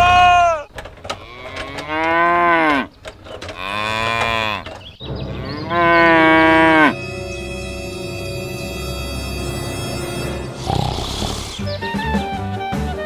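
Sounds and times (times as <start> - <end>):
cows mooing: 1.1 - 7.2, 10.5 - 11.6.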